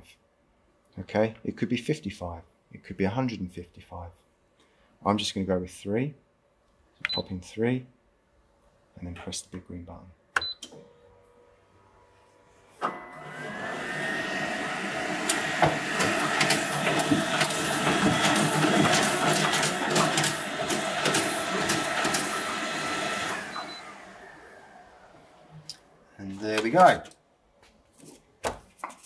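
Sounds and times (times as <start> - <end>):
printer motor whine: 12.8 - 25.6
printer clicking: 12.8 - 25.7
printer knock: 15.2 - 23.3.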